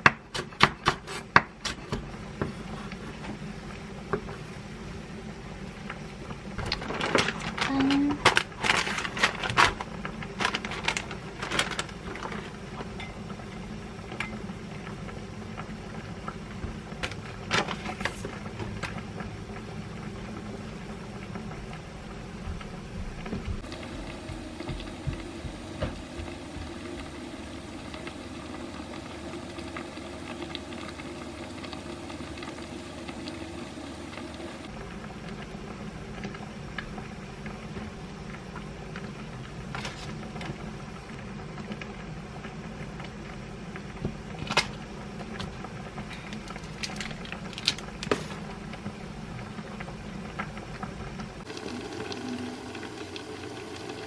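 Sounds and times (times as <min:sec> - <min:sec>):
steady low hum: 0:02.0 - 0:38.9.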